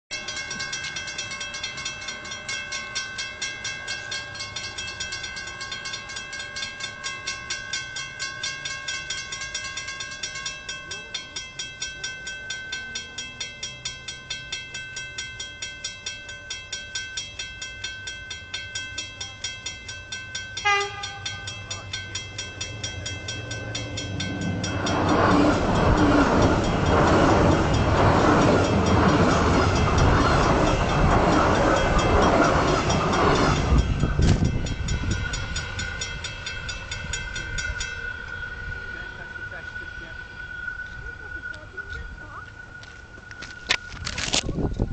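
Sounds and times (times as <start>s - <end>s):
level crossing bell ringing: 0.1s - 42.4s
train passing close by: 0.1s - 44.9s
train horn blast: 20.6s - 21.7s.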